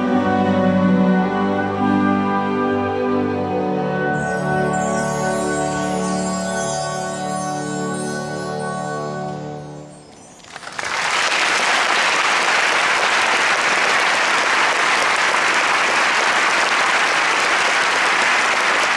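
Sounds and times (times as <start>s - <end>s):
audience applauding: 10.4s - 18.9s.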